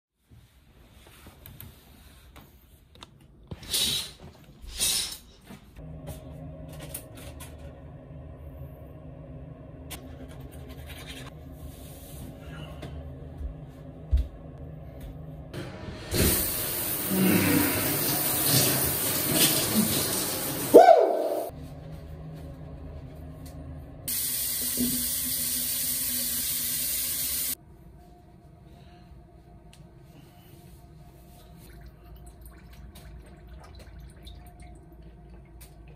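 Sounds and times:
steady low hum: 5.4 - 17.9, 21.5 - 24.6
water running from a sink tap: 16.1 - 20.8, 24.1 - 27.6.

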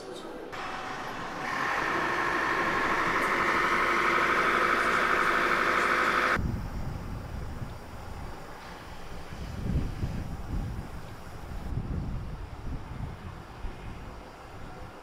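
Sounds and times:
mechanical drone: 0.6 - 8.2
wind buffeting microphone: 6.4 - 15.0.

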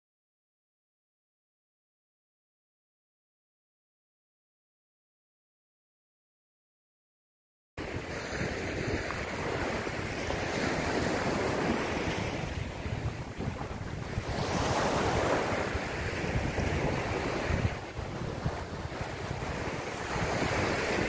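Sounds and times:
small waves washing up beach: 7.8 - 21.0
wind buffeting microphone: 7.8 - 21.0.

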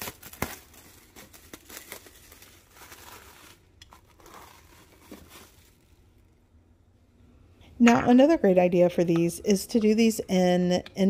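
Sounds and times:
cling film crinkling: 0.0 - 6.4.

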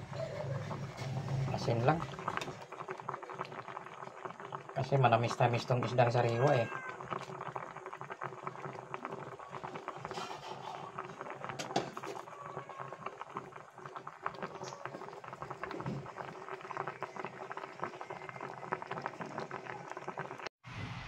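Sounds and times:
broth boiling in a pot: 0.0 - 20.5.

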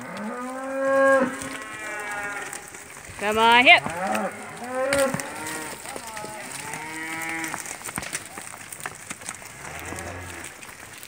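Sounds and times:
cattle mooing: 0.0 - 7.7.

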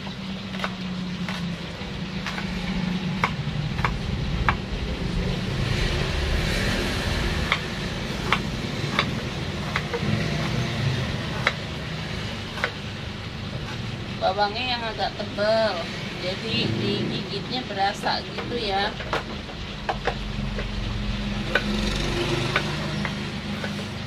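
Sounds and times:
low rumble: 1.5 - 9.4.

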